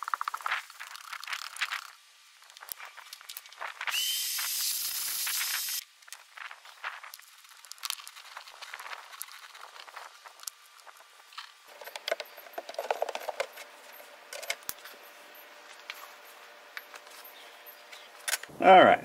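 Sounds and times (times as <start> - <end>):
air hose rustling over grit: 0.0 - 18.3.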